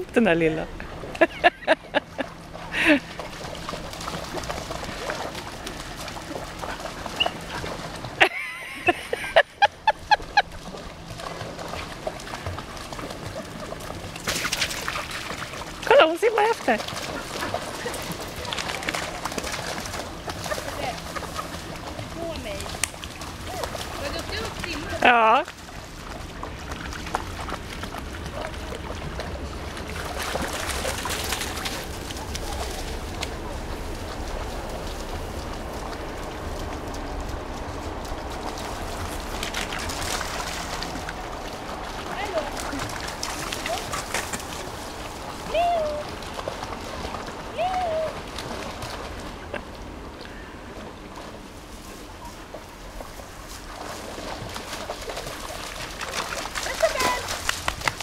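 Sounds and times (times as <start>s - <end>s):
splashing in shallow water: 0.8s - 58.0s
puppies yipping and barking: 7.0s - 7.6s
wind rumble on microphone: 25.8s - 54.7s.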